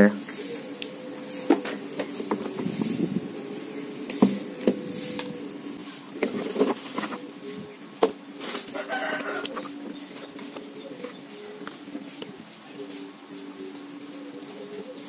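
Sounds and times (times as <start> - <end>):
steady low hum: 0.0 - 8.7.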